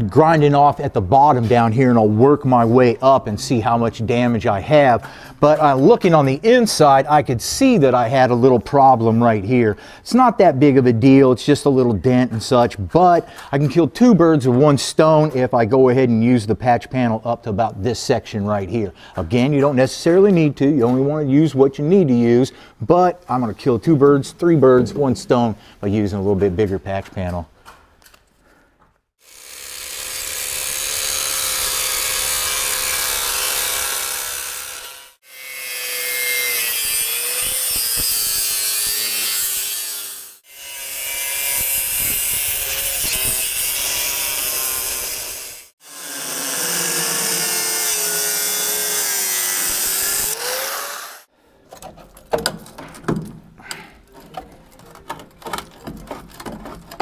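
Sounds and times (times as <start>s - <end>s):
angle grinder cutting metal: 29.2s - 51.3s
metal clanks and scrapes: 53.6s - 57.0s.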